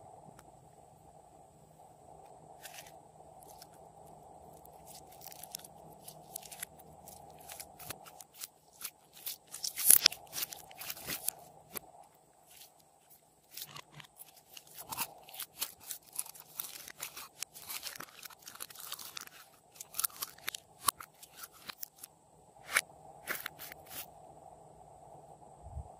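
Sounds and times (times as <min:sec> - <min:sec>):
slime crackling and popping: 0:04.6 - 0:11.8, 0:13.5 - 0:22.1.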